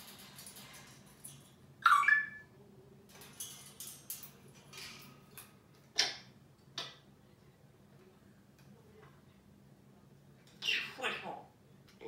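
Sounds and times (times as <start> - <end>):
scratching and clicking in cage: 0.0 - 1.8, 3.0 - 7.1
parrot squawk: 10.6 - 11.5.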